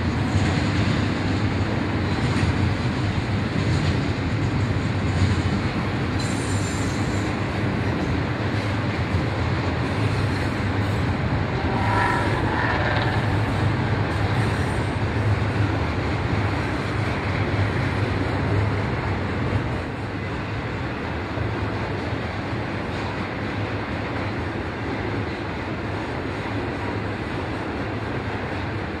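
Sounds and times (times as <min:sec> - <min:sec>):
freight train wheels rumbling: 0:00.0 - 0:29.0.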